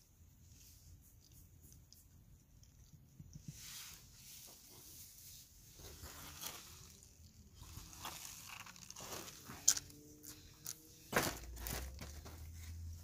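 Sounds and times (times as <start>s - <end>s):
plastic wrap crinkling: 6.0s - 9.9s.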